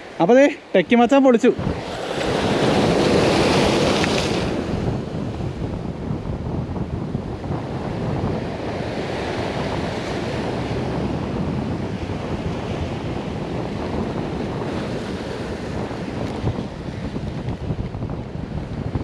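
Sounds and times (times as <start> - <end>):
sea surf breaking on shore: 0.0 - 19.0
wind buffeting microphone: 1.4 - 19.0.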